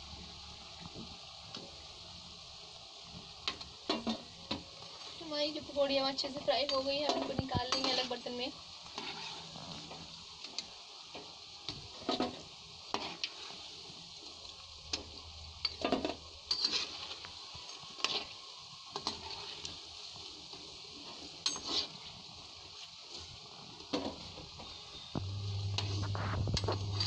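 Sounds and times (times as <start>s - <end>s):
food sizzling in hot oil: 0.0s - 27.0s
metal spoon scraping pan: 8.9s - 9.6s, 15.6s - 18.3s, 21.4s - 22.0s.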